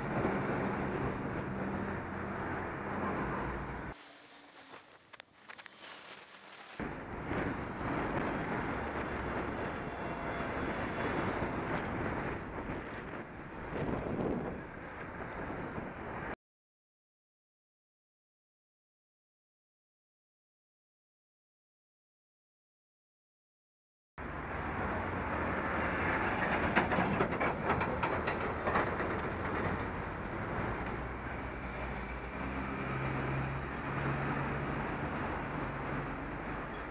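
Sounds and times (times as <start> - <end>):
traffic rumble: 0.0 - 16.3, 24.2 - 36.9
wind rushing over microphone: 6.8 - 9.8, 10.6 - 16.4.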